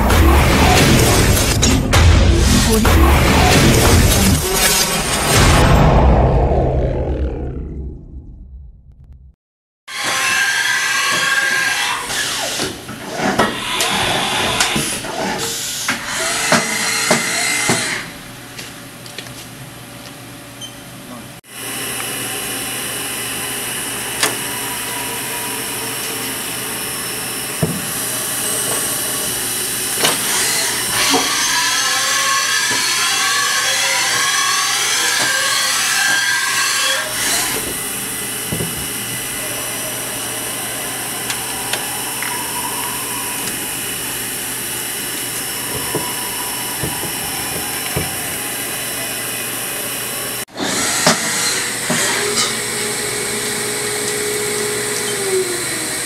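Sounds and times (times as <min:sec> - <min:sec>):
milling machine cutting metal: 0:21.8 - 0:56.0.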